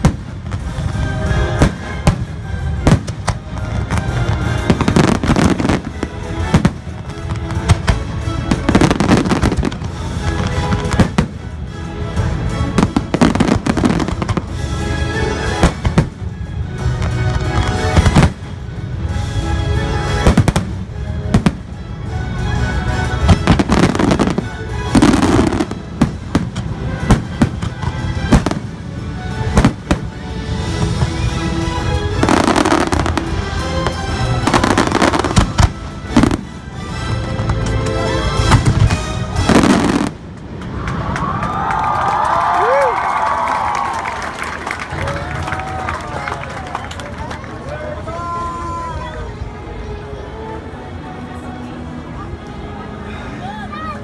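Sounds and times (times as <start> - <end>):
fireworks bursting: 0.0 - 11.6, 12.5 - 14.8, 15.4 - 18.6, 23.1 - 41.2
orchestral music over loudspeakers: 0.0 - 41.8, 42.5 - 54.0.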